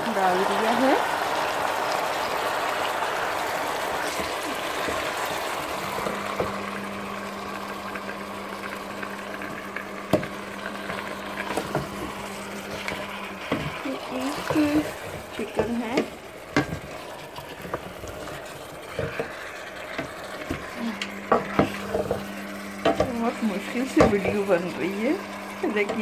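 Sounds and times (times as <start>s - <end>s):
chicken sizzling in pot: 0.0s - 26.0s
wooden spoon knocking pot: 12.8s - 18.4s, 21.3s - 22.2s, 22.8s - 23.2s, 23.9s - 24.6s.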